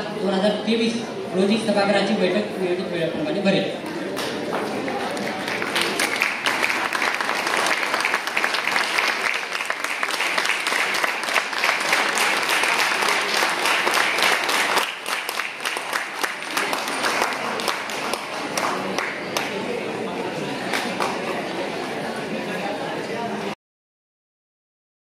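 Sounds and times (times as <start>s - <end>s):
audience applauding: 3.8s - 19.7s.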